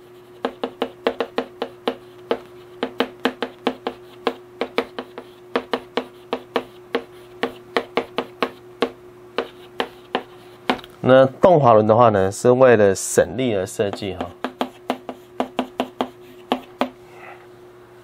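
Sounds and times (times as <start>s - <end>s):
faint steady hum: 0.0s - 18.0s
writing taps on a board: 0.4s - 10.9s, 13.9s - 17.0s.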